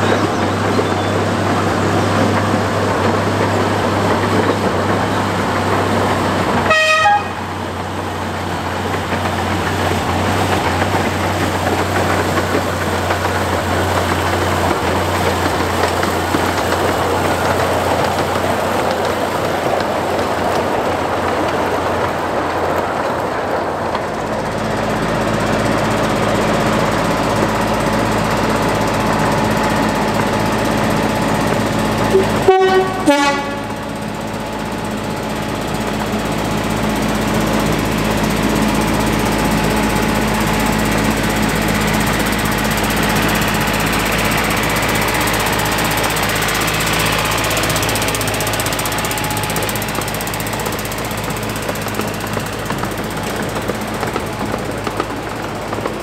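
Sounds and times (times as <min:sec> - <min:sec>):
diesel locomotives running: 0:00.0 - 0:56.0
locomotive horn toots: 0:06.6 - 0:07.6, 0:32.1 - 0:33.9.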